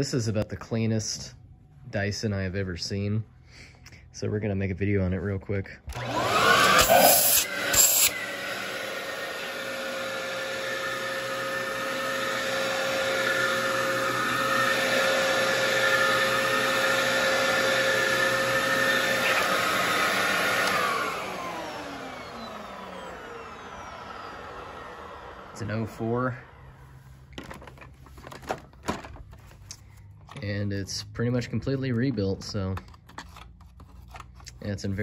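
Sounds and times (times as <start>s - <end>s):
vacuum cleaner running: 5.9s - 28.4s.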